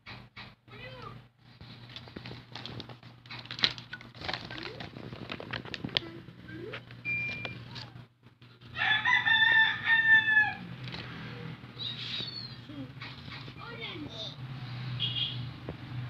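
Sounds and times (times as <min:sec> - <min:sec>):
plastic wrapping clicks and rustling: 0:01.8 - 0:07.9
rooster crowing: 0:08.7 - 0:10.8.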